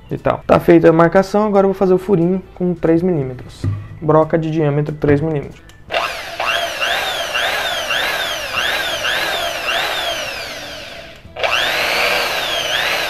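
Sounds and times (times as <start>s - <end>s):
electric drill boring into wood: 5.9s - 13.0s.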